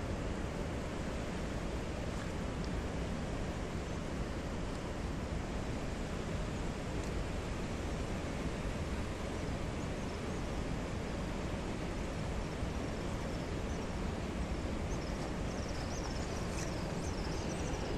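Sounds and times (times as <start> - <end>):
steady rushing noise: 11.9 - 17.9
small birds chirping: 14.9 - 17.9.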